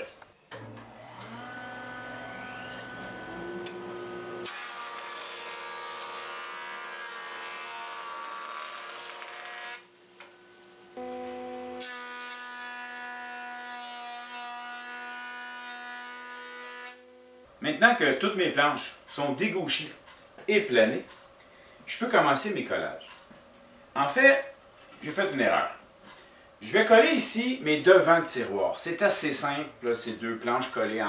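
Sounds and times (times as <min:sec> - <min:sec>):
motor spinning up with whine: 0:00.5 - 0:05.0
planer knives cutting wood: 0:00.7 - 0:09.8, 0:11.0 - 0:17.1.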